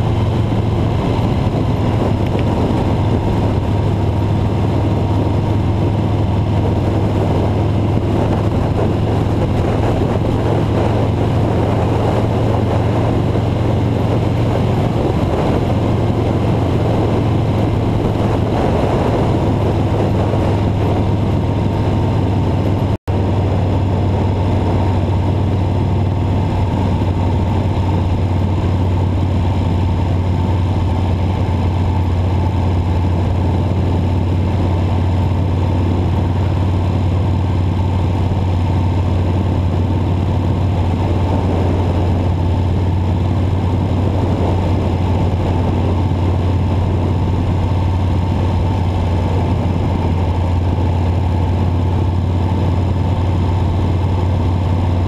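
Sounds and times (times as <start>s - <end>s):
car engine drone: 0.0s - 55.0s
tyre and road noise: 0.0s - 55.0s.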